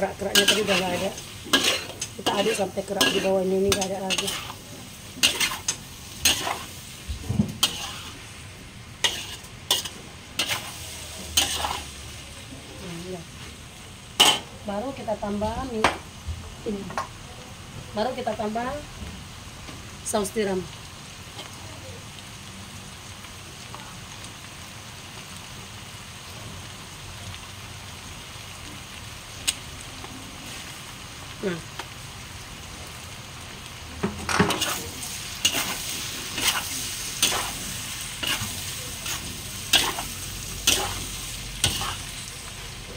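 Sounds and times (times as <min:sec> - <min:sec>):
food sizzling: 0:00.0 - 0:42.9
metal spatula scraping a wok: 0:00.2 - 0:06.8, 0:07.6 - 0:08.2, 0:09.0 - 0:12.0, 0:14.2 - 0:14.5, 0:34.4 - 0:42.2.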